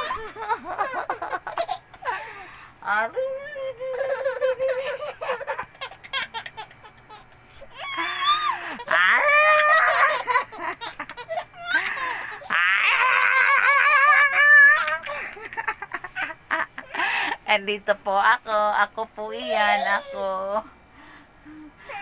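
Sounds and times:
baby laughing: 0.0 - 2.3, 3.9 - 16.6.

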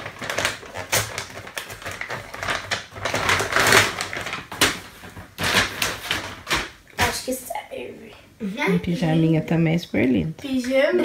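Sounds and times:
paper bag and tissue rustling: 0.0 - 6.7.

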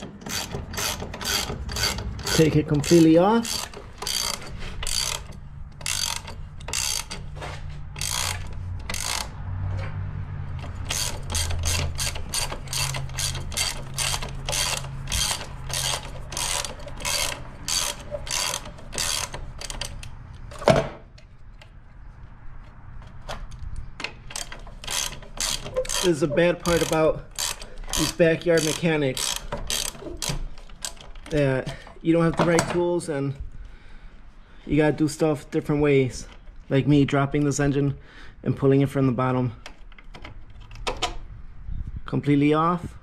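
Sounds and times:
ratchet wrench clicking: 0.0 - 9.4, 10.5 - 20.5, 23.5 - 31.4.

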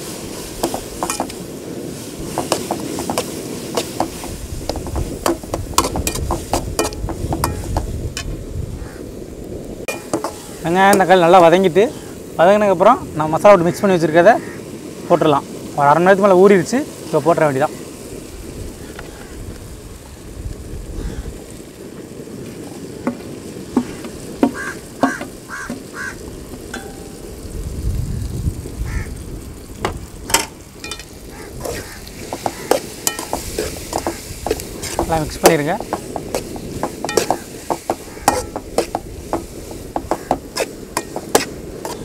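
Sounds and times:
utensil scraping pan: 0.0 - 1.5, 2.1 - 8.3, 9.9 - 11.1, 30.3 - 42.0
food sizzling in pan: 0.0 - 42.0.

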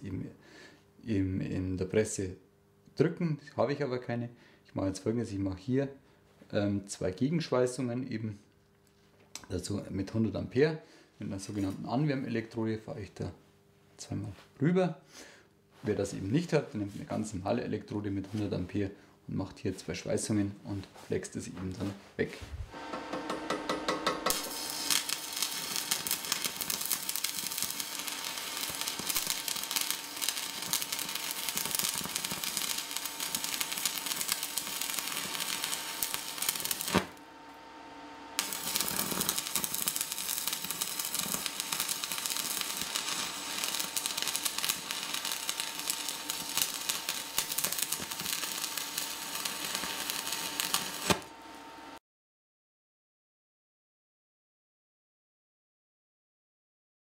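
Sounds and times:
welding arc crackling: 22.7 - 52.0.

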